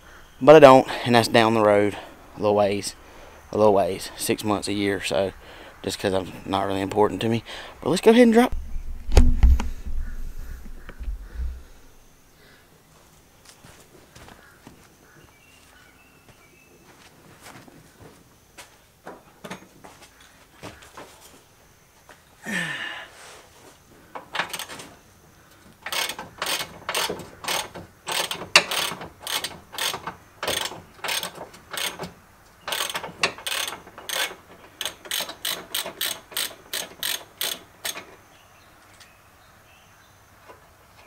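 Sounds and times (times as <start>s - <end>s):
ratchet wrench clicking: 25.8s - 32.1s, 32.7s - 38.1s.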